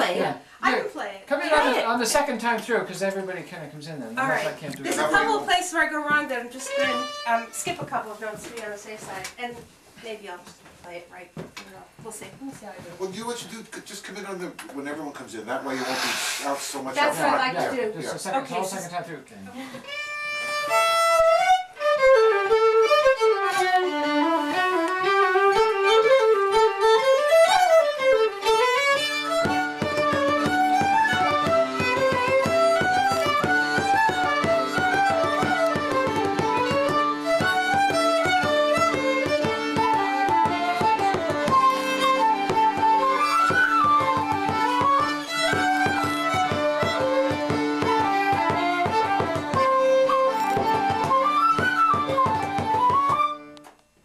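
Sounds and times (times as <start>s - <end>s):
fiddle playing folk tune: 1.4s - 9.3s, 15.5s - 53.7s
accordion: 4.2s - 9.1s, 15.6s - 19.0s, 19.8s - 53.6s.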